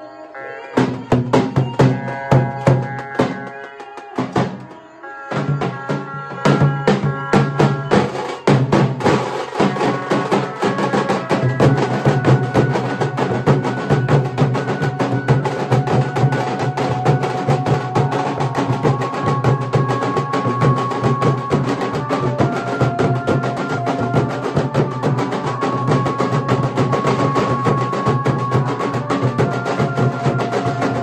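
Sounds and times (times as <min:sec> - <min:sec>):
dhol drums beating: 0:00.8 - 0:31.0.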